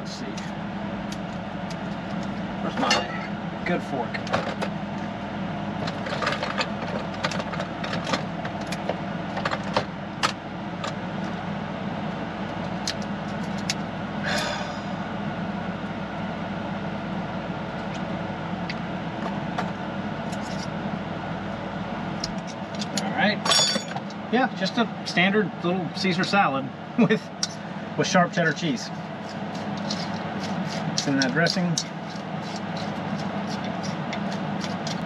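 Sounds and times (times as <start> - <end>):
air conditioner humming: 0.0 - 35.0
fork being handled: 29.2 - 35.0.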